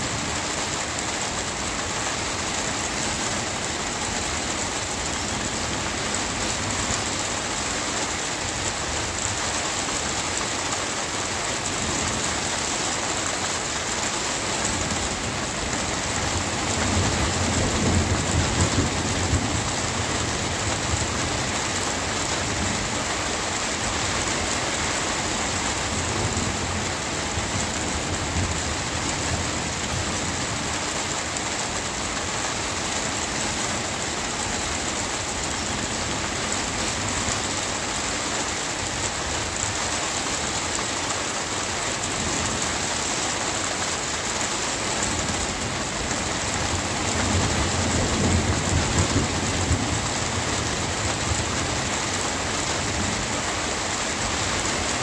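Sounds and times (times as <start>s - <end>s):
steady rain falling: 0.0s - 55.0s
low rumble of thunder: 15.9s - 23.2s, 45.2s - 52.0s.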